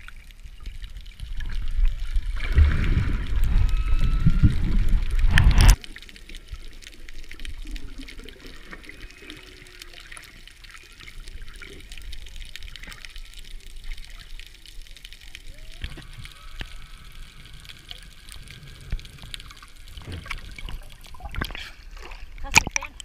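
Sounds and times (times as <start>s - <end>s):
underwater rushing and bubbling: 0.0s - 23.0s
whale song: 2.6s - 5.8s, 8.4s - 11.8s, 15.3s - 19.6s.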